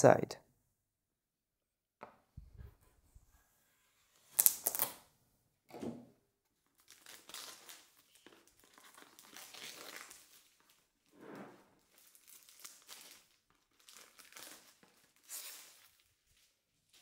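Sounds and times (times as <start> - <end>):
plastic wrap ripping: 4.3 - 5.0, 6.7 - 11.1, 11.7 - 17.0
plastic film crinkling: 6.6 - 11.1, 11.7 - 17.0.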